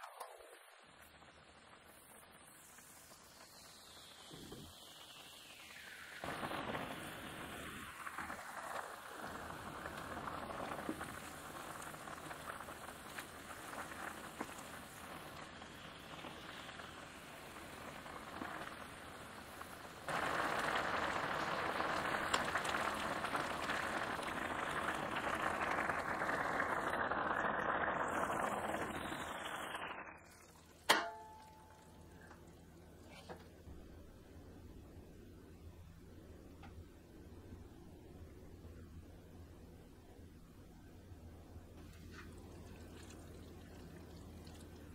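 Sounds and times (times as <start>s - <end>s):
broth bubbling in a pot: 0.0s - 44.9s.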